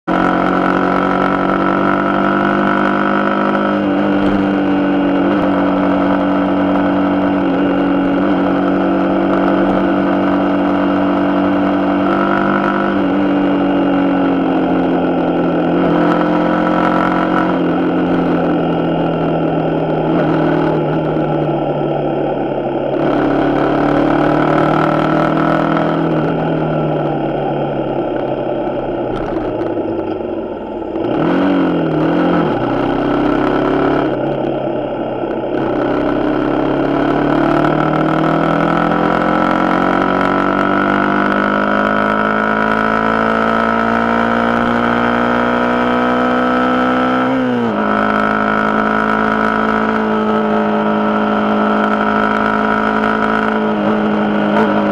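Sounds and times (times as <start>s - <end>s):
motorcycle engine running: 0.0s - 54.9s
road and wind noise: 0.0s - 54.9s.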